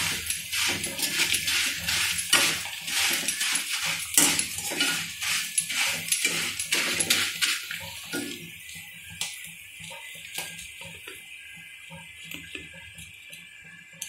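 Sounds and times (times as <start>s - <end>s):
metal utensil scraping a pan: 0.0s - 8.4s.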